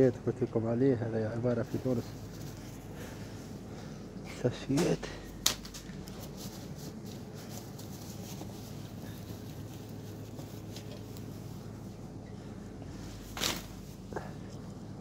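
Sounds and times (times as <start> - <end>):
steady low hum: 0.0 - 15.0
plastic bags crinkling: 5.0 - 11.5.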